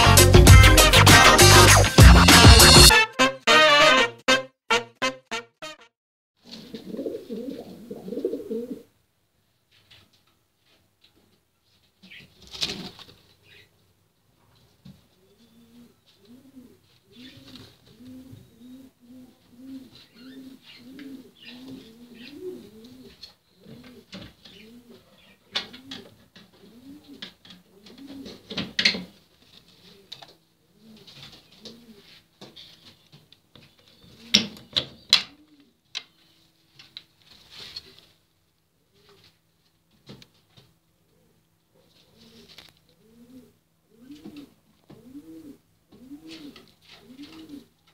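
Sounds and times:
pigeon cooing: 6.6 - 8.9, 15.2 - 28.6, 29.7 - 32.8, 33.8 - 35.8, 41.1 - 47.8.

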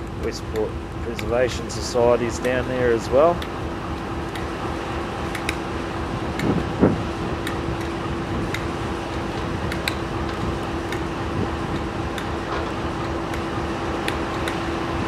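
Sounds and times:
diesel locomotive idling: 0.0 - 15.0
light ticks: 7.4 - 11.0.

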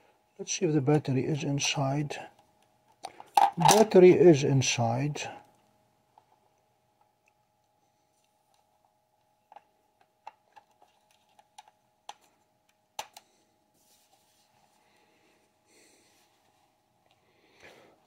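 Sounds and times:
faint handling rustle: 13.7 - 17.2.

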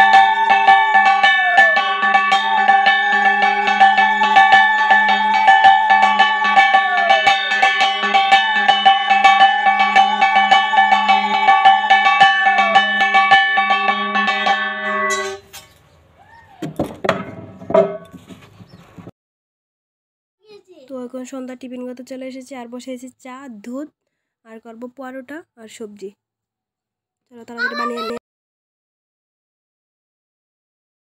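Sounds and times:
fast percussion beat: 0.0 - 15.2
music with melodic tones and drone: 0.0 - 15.4.

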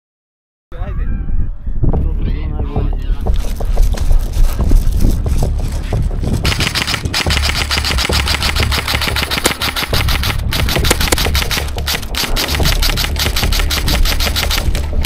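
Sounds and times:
airsoft gun full-auto bursts: 6.4 - 15.0.

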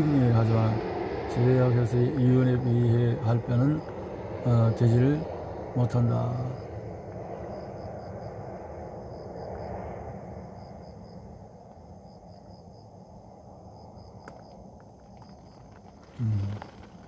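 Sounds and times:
low rushing noise: 0.0 - 14.8
insect chirping: 0.0 - 17.0.

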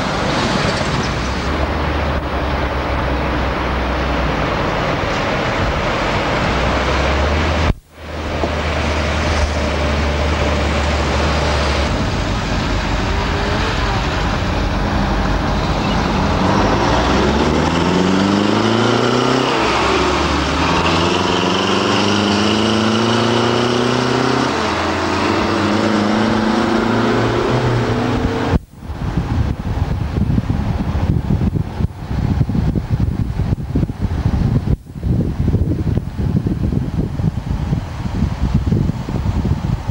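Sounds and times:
engine rising in pitch: 0.0 - 29.2
road noise inside car: 0.0 - 39.9.

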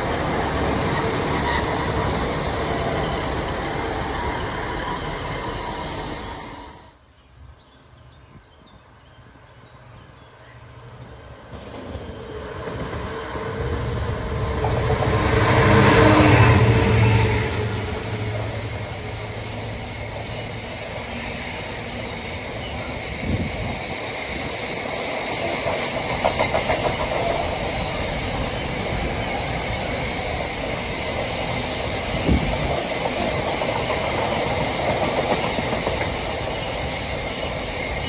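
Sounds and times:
diesel locomotive passing: 0.0 - 7.0, 9.4 - 38.0
wheels clacking over rail joints: 23.8 - 38.0.

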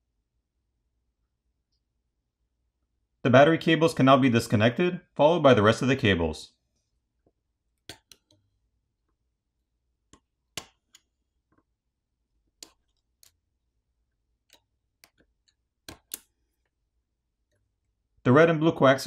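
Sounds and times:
small sharp connector clicks: 7.8 - 8.4.

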